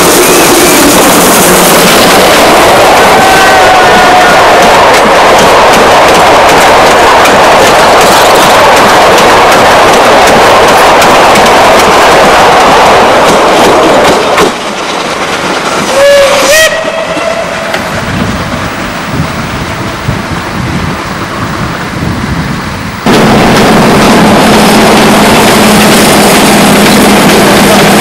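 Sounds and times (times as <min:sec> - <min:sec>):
train wheels rattling past: 0:00.0 - 0:22.5
distant train rumble: 0:00.0 - 0:28.0
steam locomotive whistle: 0:15.9 - 0:18.0.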